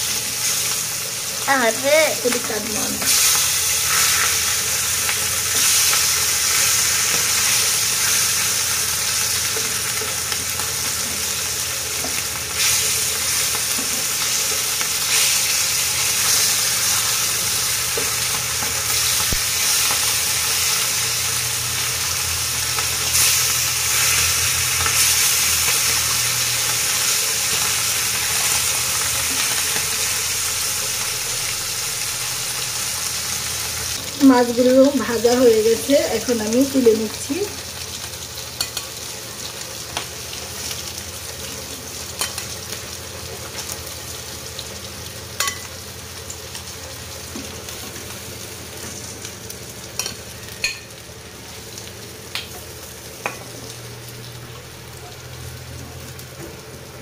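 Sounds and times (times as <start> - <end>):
fish sizzling in oil: 0.0 - 57.0
spatula turning fish: 1.6 - 11.3, 12.0 - 21.1.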